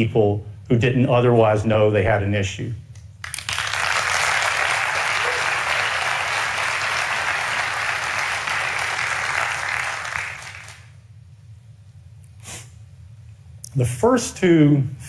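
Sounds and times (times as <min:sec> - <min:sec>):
audience applauding: 0:03.2 - 0:10.9.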